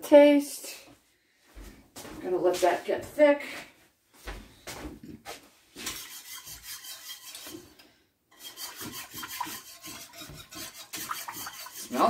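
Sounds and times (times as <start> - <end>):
spatula scraping pot bottom: 5.8 - 12.0.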